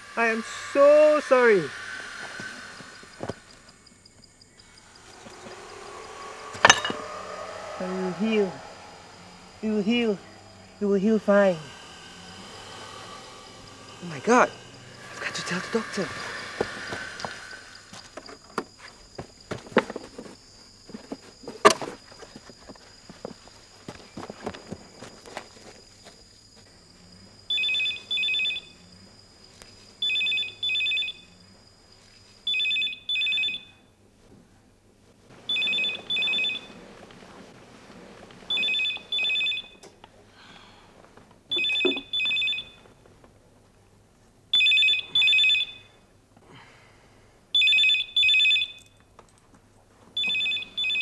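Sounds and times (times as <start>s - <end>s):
telephone ringing: 27.5s - 28.7s, 30.0s - 31.2s, 32.5s - 33.8s, 35.5s - 36.7s, 38.5s - 39.8s, 41.5s - 42.9s, 44.6s - 46.0s, 47.6s - 48.9s, 50.2s - 51.0s.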